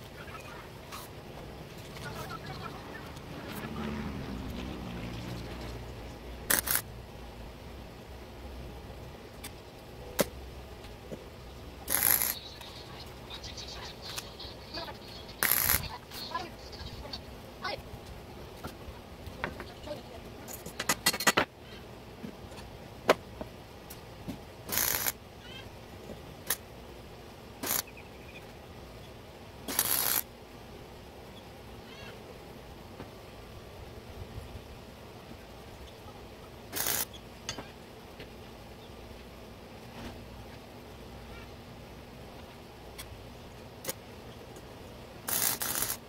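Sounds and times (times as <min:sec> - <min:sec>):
faint low hum: 0:00.0 - 0:20.8
steady low hiss: 0:00.0 - 0:46.0
arc welding crackle: 0:06.4 - 0:06.9, 0:11.8 - 0:16.8, 0:24.7 - 0:25.2, 0:27.6 - 0:28.0, 0:29.7 - 0:30.3, 0:36.7 - 0:37.2, 0:45.2 - 0:46.0
sharp clicks: 0:06.5 - 0:06.8.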